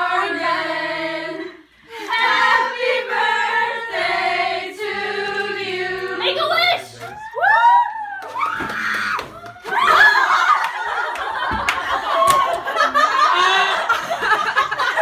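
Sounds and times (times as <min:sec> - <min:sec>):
young women laughing and shrieking: 0:07.2 - 0:15.0.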